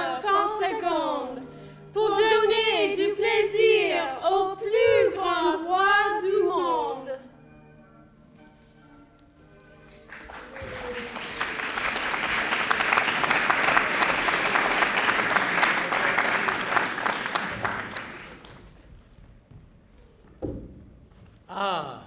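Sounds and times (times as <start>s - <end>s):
audience applauding: 9.9s - 18.9s.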